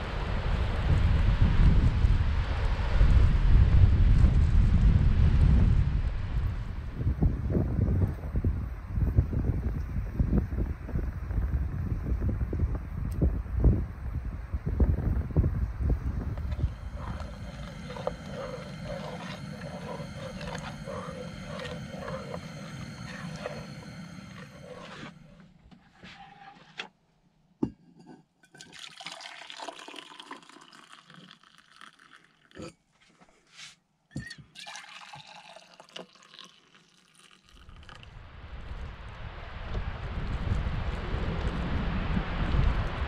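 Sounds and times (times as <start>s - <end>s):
steady hum: 13.6s - 25.8s
liquid pouring and splashing: 16.3s - 25.2s, 28.5s - 32.7s, 34.2s - 38.1s.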